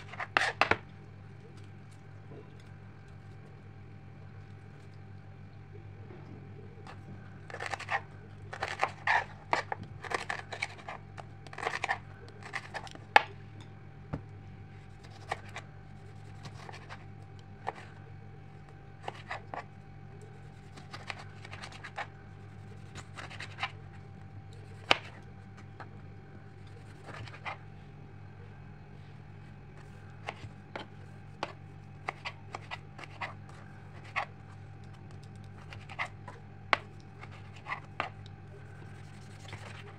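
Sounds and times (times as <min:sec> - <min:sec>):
knife cutting on plastic board: 0:00.0 - 0:00.8, 0:07.5 - 0:13.3, 0:20.6 - 0:22.1, 0:24.6 - 0:25.2, 0:26.8 - 0:27.6, 0:29.8 - 0:34.3, 0:35.2 - 0:38.2, 0:38.8 - 0:39.9
steady low hum: 0:00.0 - 0:39.9.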